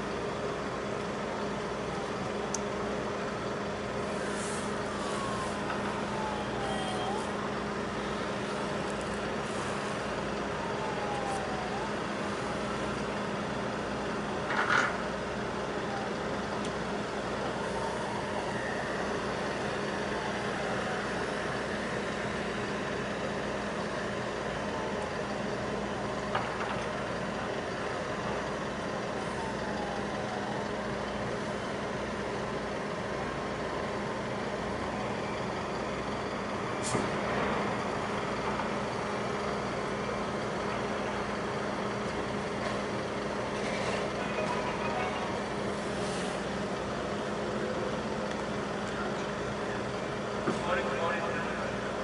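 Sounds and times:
engine drone: 0.0s - 52.0s.

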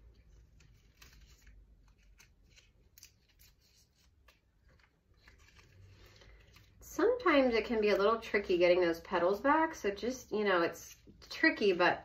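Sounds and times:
petals clicking and rustling: 0.0s - 6.9s.

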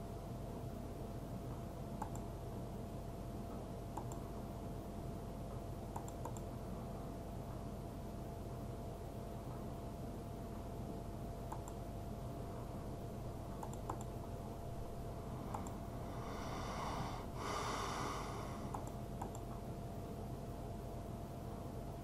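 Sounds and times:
electrical hum: 0.0s - 22.0s
computer mouse clicking: 2.0s - 2.3s, 3.9s - 4.3s, 5.9s - 6.5s, 11.5s - 11.8s, 13.6s - 14.2s, 15.5s - 15.8s, 18.7s - 19.6s.

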